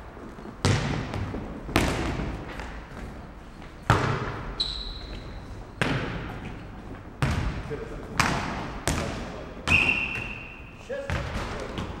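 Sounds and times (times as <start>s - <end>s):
ball bouncing and kicked in hall: 0.0s - 12.0s
high whistle tone: 9.7s - 10.6s.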